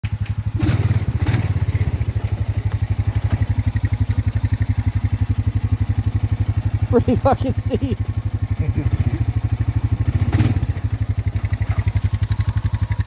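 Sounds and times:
atv engine running at low revs: 0:00.0 - 0:13.0.

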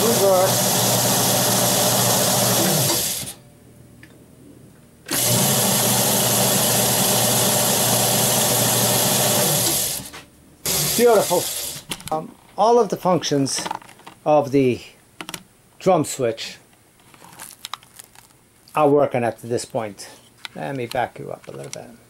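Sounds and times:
electric motor humming: 0:00.0 - 0:03.4, 0:05.1 - 0:11.9.

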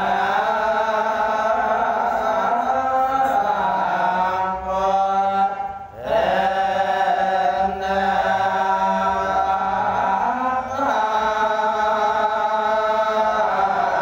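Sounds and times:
monk chanting through microphone: 0:00.0 - 0:14.0.

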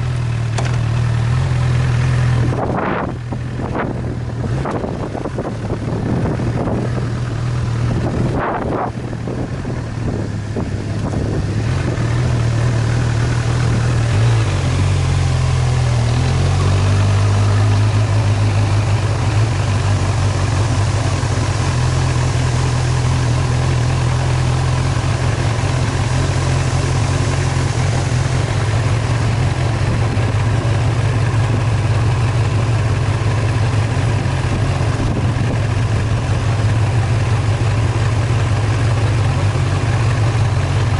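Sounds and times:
vehicle engine droning: 0:00.0 - 0:40.9
wind gusts on microphone: 0:07.9 - 0:12.1.

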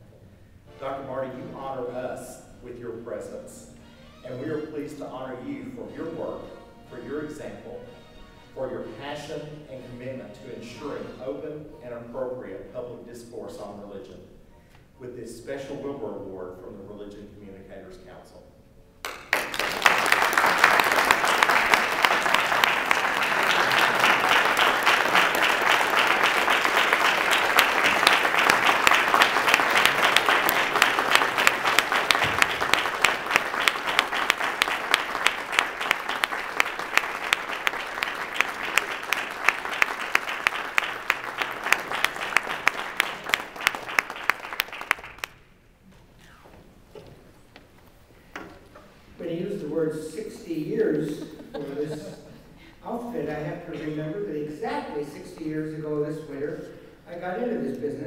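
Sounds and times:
audience applauding: 0:19.0 - 0:45.4.

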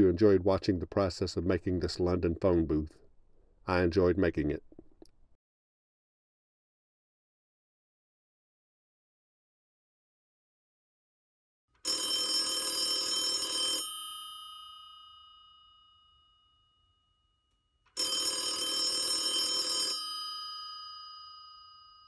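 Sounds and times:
telephone bell ringing: 0:11.8 - 0:22.0.

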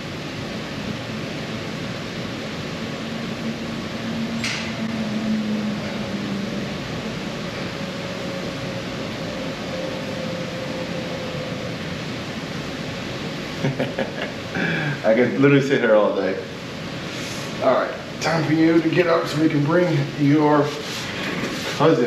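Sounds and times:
mechanical hum and hiss: 0:00.0 - 0:22.0
brief hiss: 0:17.1 - 0:17.6.

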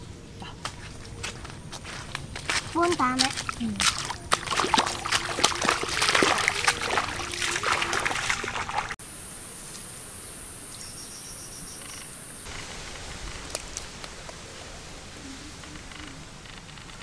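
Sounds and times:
water splashing and trickling: 0:00.9 - 0:09.0
steady hiss: 0:09.0 - 0:17.0.

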